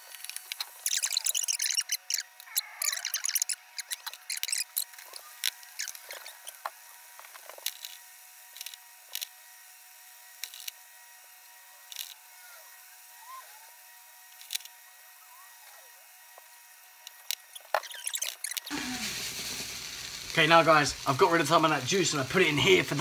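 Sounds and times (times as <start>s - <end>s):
sharp crackles and spits: 0.1s - 8.0s, 17.1s - 23.0s
meat frying in a pan: 17.5s - 23.0s.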